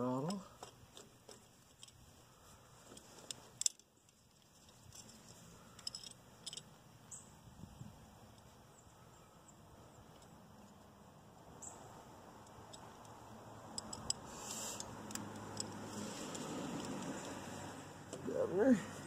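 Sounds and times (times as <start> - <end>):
small sharp clicks: 12.4 - 17.4.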